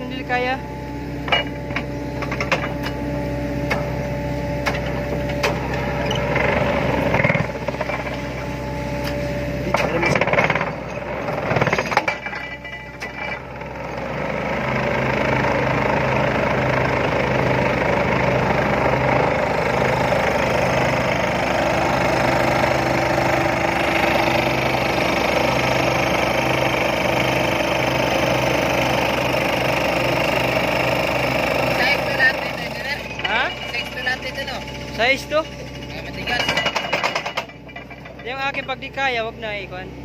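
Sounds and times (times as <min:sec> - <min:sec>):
excavator engine: 0:00.0 - 0:40.0
pile hammer vibrating rattle: 0:33.1 - 0:39.1.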